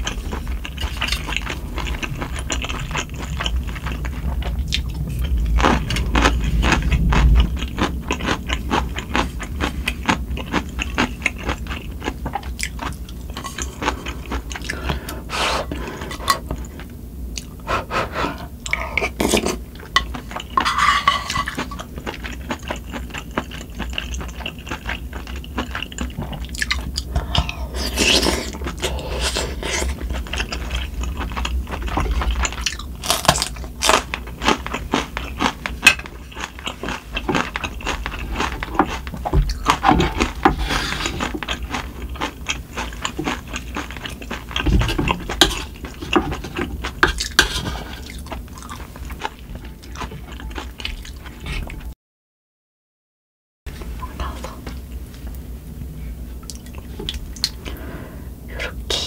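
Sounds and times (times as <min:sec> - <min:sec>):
wind and rain hum: 0:00.0 - 0:11.2
close chewing: 0:00.0 - 0:18.0, 0:18.6 - 0:51.9
chopsticks and spoon scraping pan: 0:13.3 - 0:16.7, 0:17.8 - 0:22.1, 0:35.8 - 0:42.1, 0:42.8 - 0:48.1.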